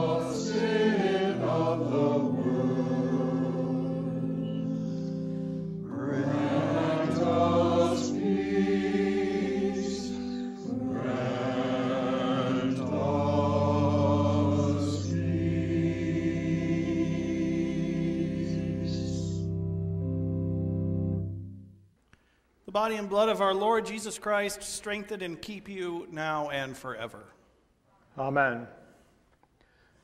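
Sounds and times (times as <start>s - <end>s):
person singing a hymn: 0.0s - 20.8s
sustained accompaniment chords: 0.0s - 21.9s
singer breathing: 4.8s - 5.8s, 29.1s - 30.0s.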